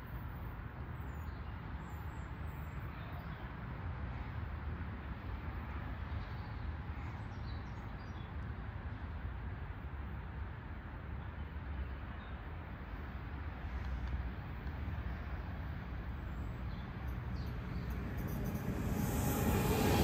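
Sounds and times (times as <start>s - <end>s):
low outdoor rumble: 15.2s - 20.0s.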